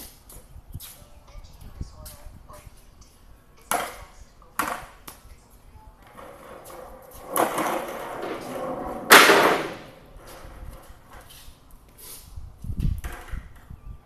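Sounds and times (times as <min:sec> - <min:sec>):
wooden boards scraping and sliding: 0:06.1 - 0:11.3
loud clatter of wood: 0:07.3 - 0:10.0.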